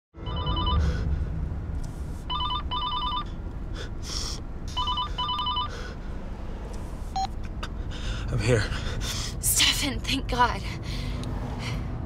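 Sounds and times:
trilling ringtone beeps: 0.2s - 0.8s, 2.3s - 3.3s, 4.8s - 5.7s
low car cabin rumble: 0.2s - 11.9s.

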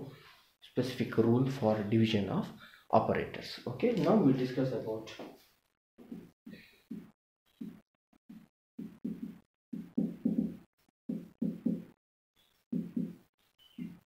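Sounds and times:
marker squeaking on whiteboard: 6.0s - 10.2s, 11.2s - 14.0s.

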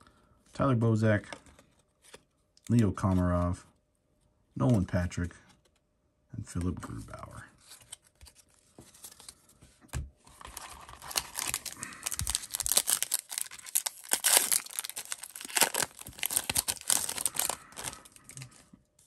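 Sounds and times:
wrapper tearing and crinkling: 10.4s - 18.6s.

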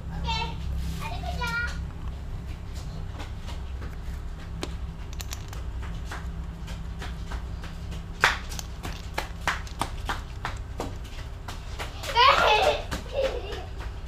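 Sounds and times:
steady low hum: 0.0s - 14.0s
metal parts clicking and tapping: 4.6s - 5.7s, 8.3s - 11.0s.

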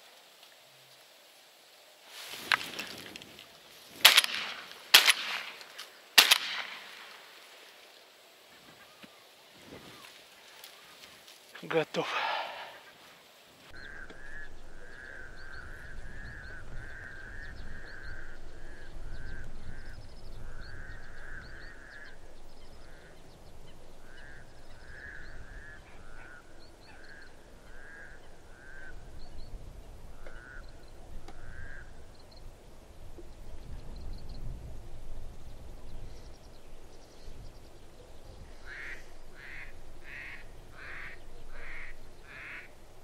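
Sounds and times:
wind rumble on microphone: 13.7s - 43.0s
duck quacking: 38.6s - 42.7s.

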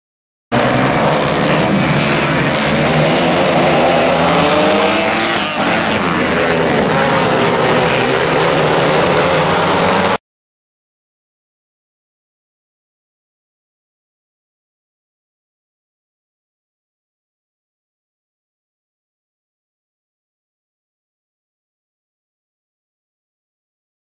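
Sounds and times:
race car engines at high revs: 0.5s - 10.2s.

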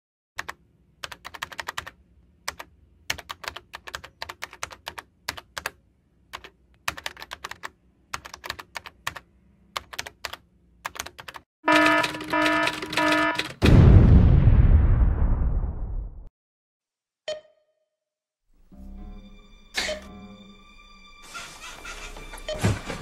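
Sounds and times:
computer keyboard typing: 0.4s - 13.6s.

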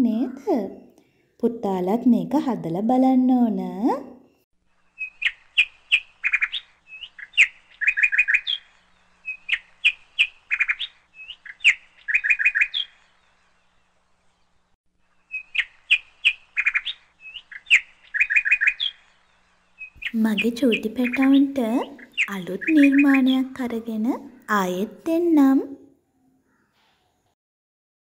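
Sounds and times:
songbird chirping and trilling: 0.0s - 27.4s.

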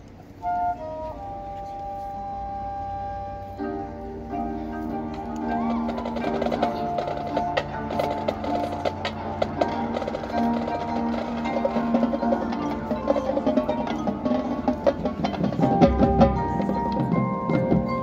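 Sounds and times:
marching band playing: 0.8s - 18.0s
mallet percussion: 3.6s - 18.0s.

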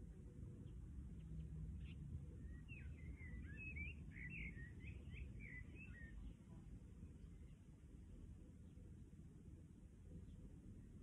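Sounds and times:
songbird twittering: 1.8s - 6.3s.

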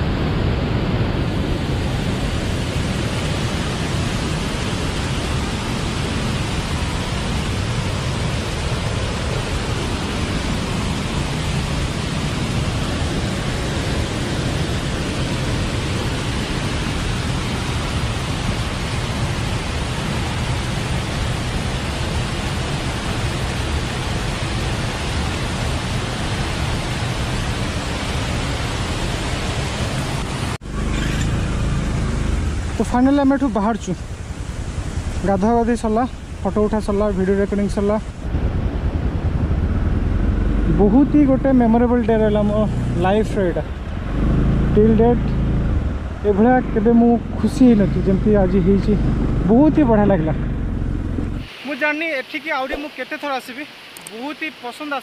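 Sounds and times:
waterfall rushing: 0.0s - 38.9s, 39.9s - 55.0s
stream running over rocks: 0.1s - 38.5s, 39.9s - 55.0s.

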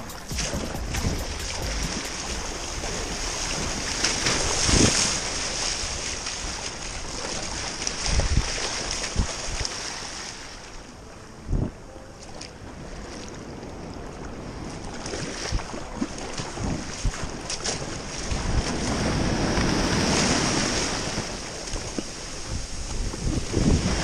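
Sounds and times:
paddle strokes splashing: 0.0s - 10.8s, 14.8s - 23.3s
surf washing: 0.0s - 11.2s, 12.4s - 24.0s
wind buffeting microphone: 7.9s - 9.7s, 12.6s - 24.0s.

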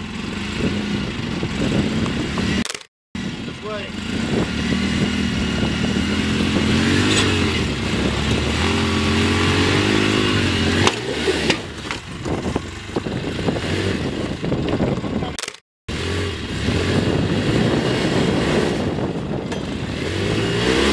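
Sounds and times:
off-road vehicle engine revving: 0.0s - 15.3s, 15.9s - 20.9s
sharp knocks: 19.5s - 19.8s.

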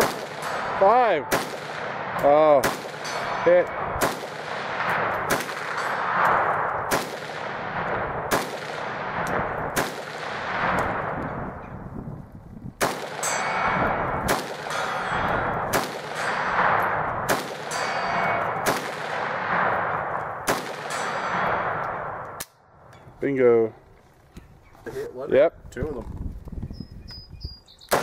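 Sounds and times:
rifle shots: 0.0s - 11.7s, 12.8s - 22.6s
rolling echo: 0.0s - 24.0s.

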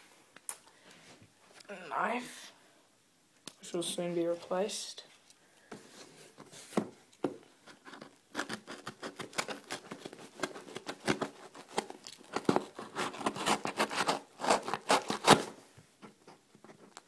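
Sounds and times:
knife sawing through cardboard: 8.4s - 15.5s.

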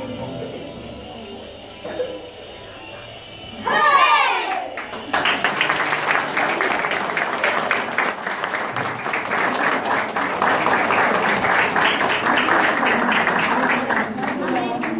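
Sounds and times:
audience applause: 4.5s - 14.9s.

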